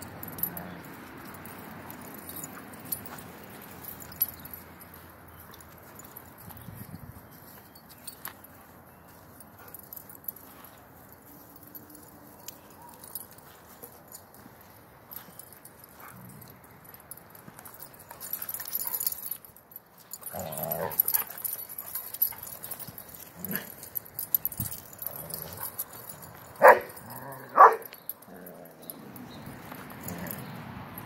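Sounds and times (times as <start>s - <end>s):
dog barks: 26.6s - 28.0s.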